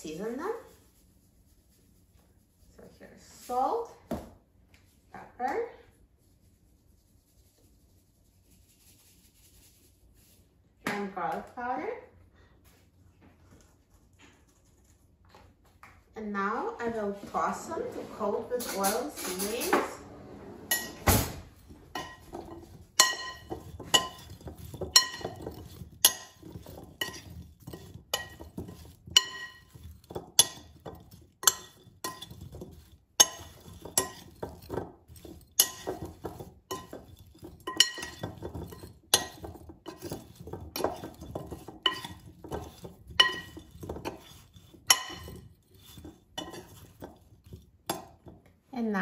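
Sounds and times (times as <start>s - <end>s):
potatoes tumbling in bowl: 21.6s - 48.5s
metal spoon clinking on glass bowl: 22.0s - 48.3s.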